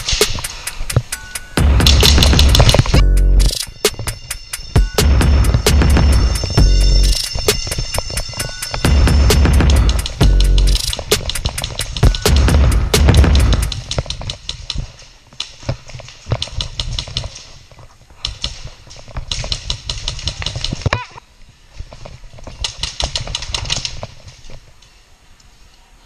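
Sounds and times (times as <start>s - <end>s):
airsoft rifle rapid clicking shots: 9.4s - 15.6s, 16.2s - 17.5s, 18.2s - 20.9s, 22.6s - 24.1s.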